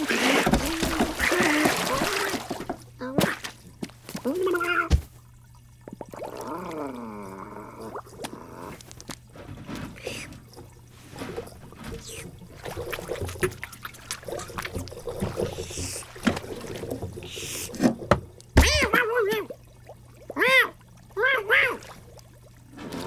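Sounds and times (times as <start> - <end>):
water trickling and splashing: 0.0 - 23.0
cartoon cat yowl: 18.6 - 19.5, 20.3 - 21.9.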